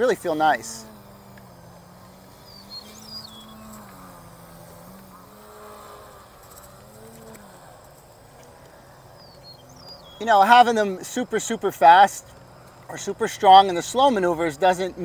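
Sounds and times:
model plane motor and propeller: 0.0 - 15.0.

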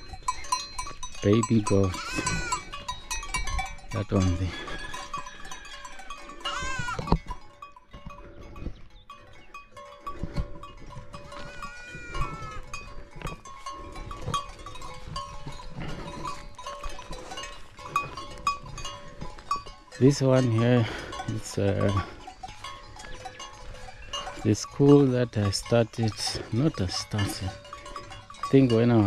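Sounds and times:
young goat bleating: 1.8 - 2.7, 6.4 - 7.2, 11.3 - 12.8.

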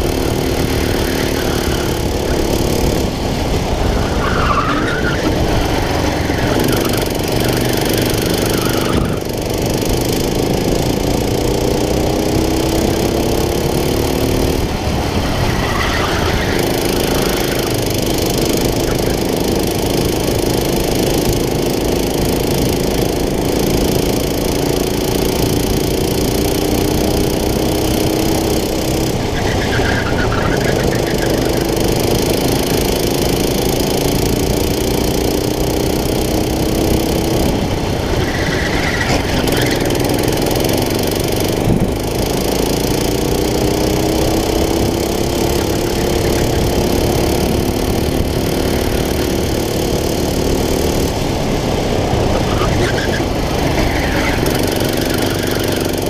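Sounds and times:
go-kart engine revving: 0.0 - 56.0
tyre squeals: 3.9 - 9.4, 15.4 - 17.8, 28.9 - 31.6, 38.1 - 40.0, 52.4 - 56.0.

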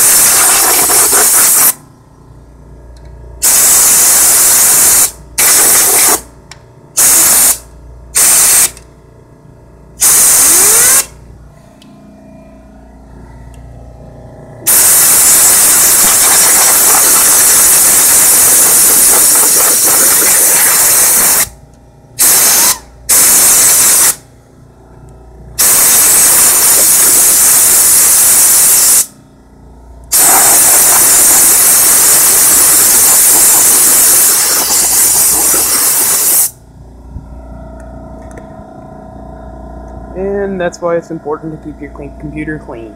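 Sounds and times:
air blow gun hissing blasts: 0.0 - 1.8, 3.4 - 6.3, 7.0 - 8.8, 10.0 - 11.1, 14.7 - 21.5, 22.2 - 24.2, 25.6 - 29.1, 30.1 - 36.6.

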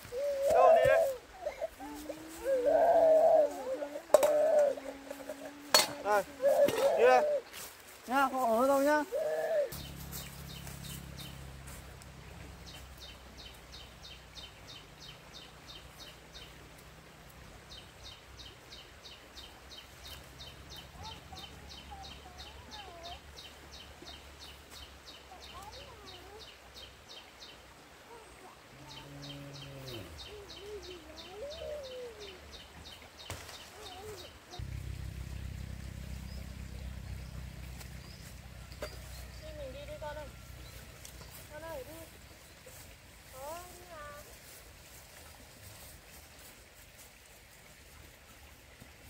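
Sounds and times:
faint wavering calls: 0.0 - 7.7, 8.4 - 11.8, 28.6 - 32.5
steady low hum: 34.6 - 41.4.

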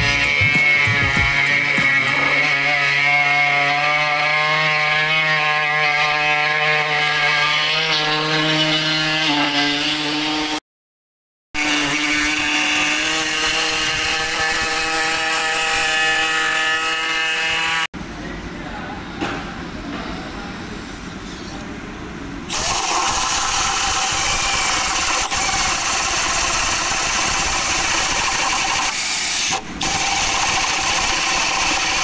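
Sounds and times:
pneumatic tool whining: 22.5 - 32.0.

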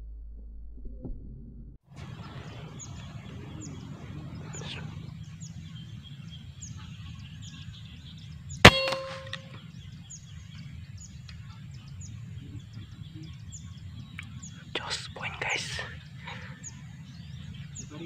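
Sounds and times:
air rifle shot: 8.6 - 9.6
brief metallic ring: 8.7 - 9.5.

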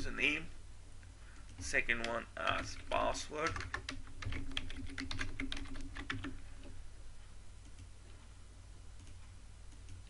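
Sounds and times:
faint low hum: 0.0 - 10.0
typing on a keyboard: 1.5 - 6.4.

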